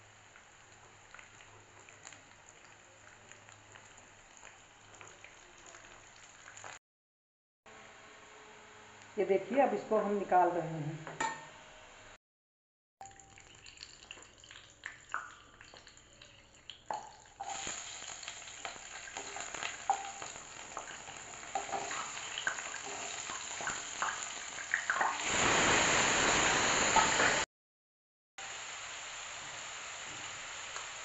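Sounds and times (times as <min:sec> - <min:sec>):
oil sizzling: 0:00.0 - 0:06.8, 0:13.0 - 0:27.5, 0:28.4 - 0:31.0.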